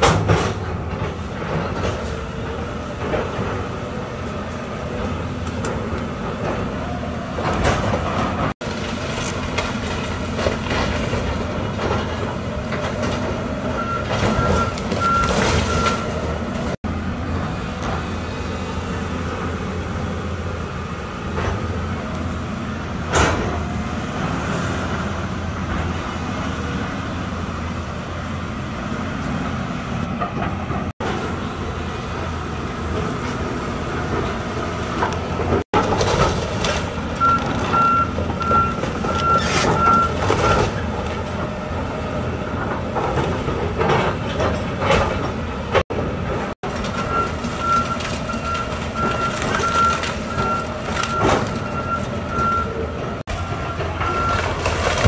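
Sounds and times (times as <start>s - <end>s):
excavator diesel engine running: 0.0s - 55.0s
wood debris crunching and cracking: 7.4s - 13.4s, 35.0s - 41.5s, 46.4s - 52.7s, 53.3s - 55.0s.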